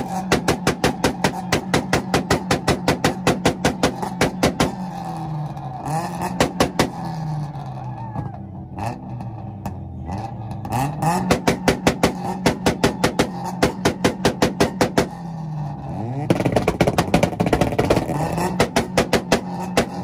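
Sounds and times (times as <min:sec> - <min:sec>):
exhaust pops: 0:00.0 - 0:05.6, 0:06.2 - 0:07.1, 0:11.2 - 0:15.4, 0:16.2 - 0:20.0
car engines revving: 0:00.0 - 0:20.0.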